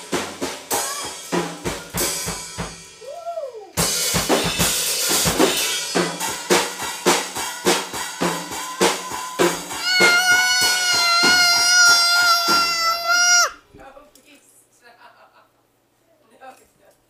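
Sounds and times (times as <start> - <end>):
drum kit playing: 0.0 - 3.0, 3.8 - 13.6
toddler banging on toy drums: 3.8 - 13.6.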